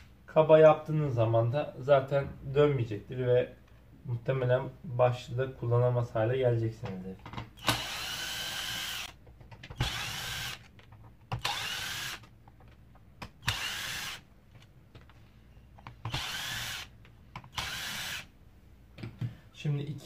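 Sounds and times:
electric screwdriver spinning: 7.6 - 9.2, 9.8 - 10.7, 11.4 - 12.2, 13.4 - 14.2, 16.1 - 16.9, 17.5 - 18.3.

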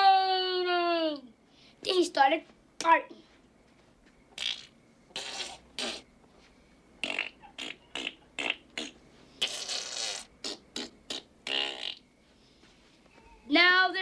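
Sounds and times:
boy imitating fart noises: 4.4 - 6.1, 7.0 - 12.0.

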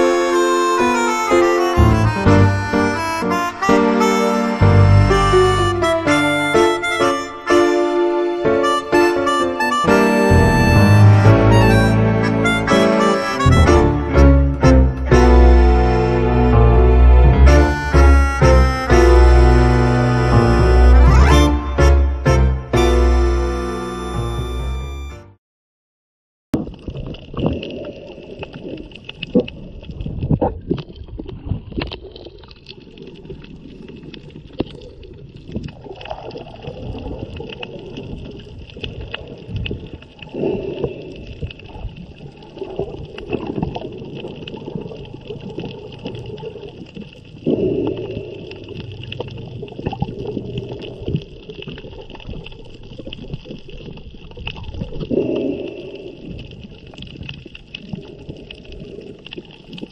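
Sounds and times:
churning gurgling water underwater: 26.6 - 59.9.

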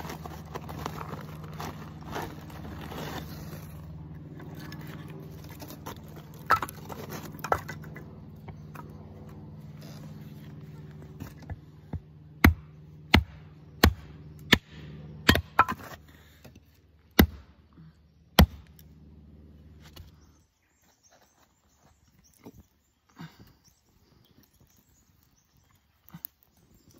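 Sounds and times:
steady low hum: 0.0 - 20.6
hatchet chopping wood: 11.3 - 16.0, 17.1 - 17.6, 18.3 - 18.8.

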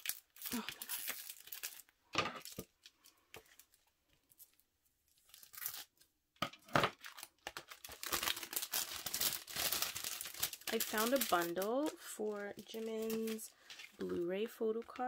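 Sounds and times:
plastic sleeve crinkling: 0.0 - 6.1, 6.9 - 15.0.

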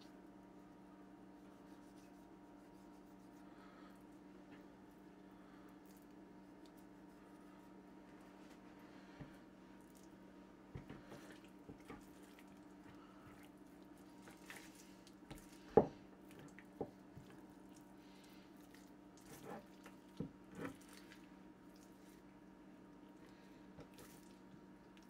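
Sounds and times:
steady low hum: 0.0 - 25.0
wet squishing of raw meat: 11.3 - 15.6, 16.2 - 22.3, 23.1 - 25.0.

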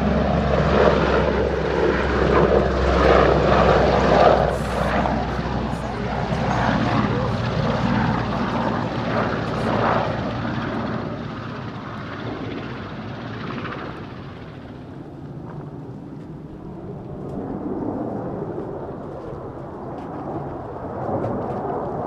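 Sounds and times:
distant jet rumble: 0.0 - 22.0
helicopter flying past: 0.0 - 22.0.

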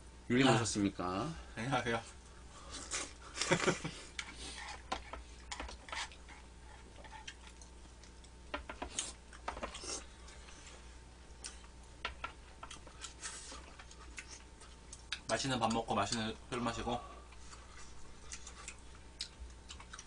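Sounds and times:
chewing: 4.1 - 10.6, 11.3 - 16.4, 17.3 - 20.0.

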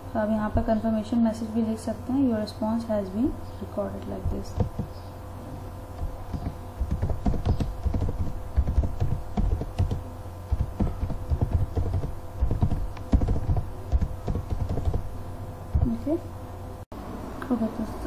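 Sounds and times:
computer keyboard typing: 4.2 - 4.9, 6.0 - 15.0.

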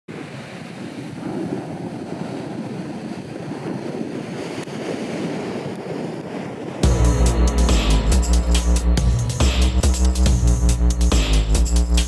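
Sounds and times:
wind on microphone: 0.1 - 6.9
ocean waves breaking: 0.1 - 11.0.

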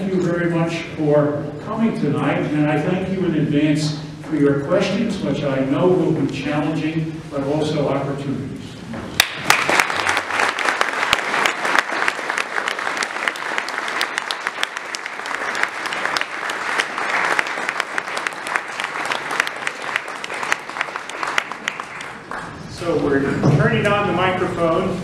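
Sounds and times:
audience applauding: 9.2 - 22.7.

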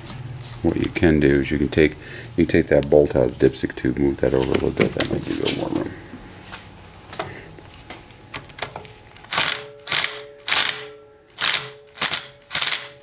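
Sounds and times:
hand ratchet clicking: 9.2 - 13.0.

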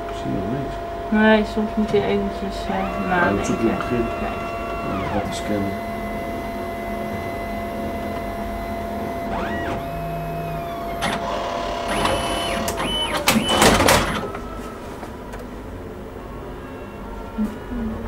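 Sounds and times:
scanner humming: 0.0 - 18.0
motor whines: 2.0 - 14.8.

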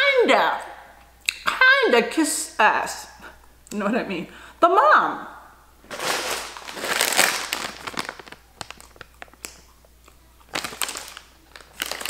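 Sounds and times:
chip bag crinkling: 5.8 - 12.0.

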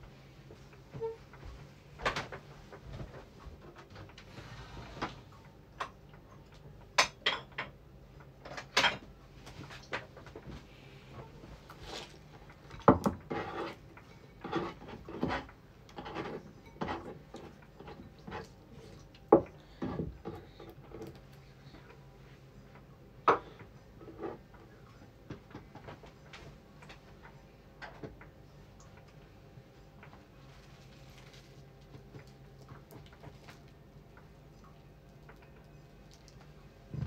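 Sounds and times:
utensils scraping on a cutting board: 13.1 - 18.5.

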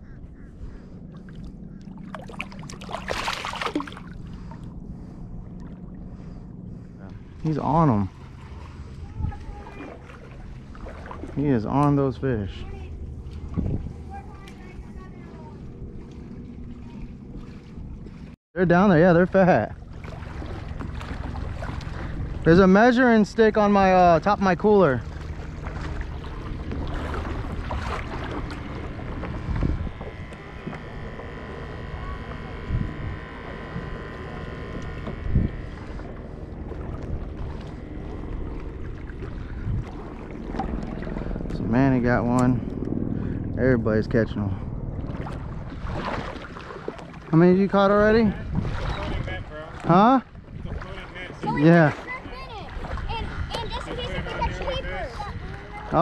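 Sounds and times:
water sloshing around a kayak: 0.0 - 43.6, 44.6 - 56.0
wind buffeting the microphone: 3.1 - 18.3, 19.8 - 56.0.

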